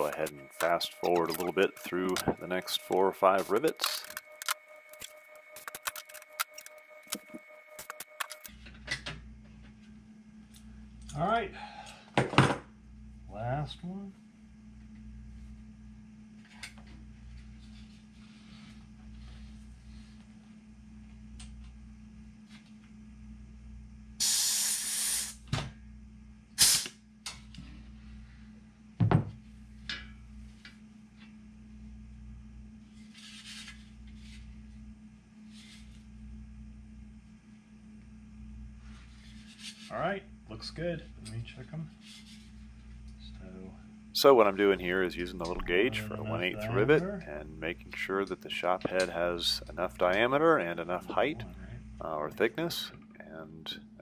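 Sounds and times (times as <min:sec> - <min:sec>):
low steady hum: 0:00.0 - 0:24.2, 0:25.4 - 0:54.0
steady whine: 0:00.0 - 0:54.0
pneumatic air hiss: 0:24.2 - 0:25.5, 0:26.6 - 0:27.0
tool knocking on wooden bench: 0:29.0 - 0:29.4.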